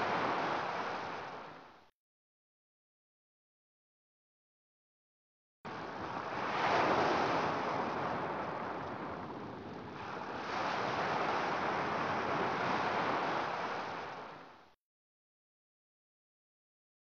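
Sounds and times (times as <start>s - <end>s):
ocean waves washing in: 0.0s - 1.9s, 5.7s - 14.8s.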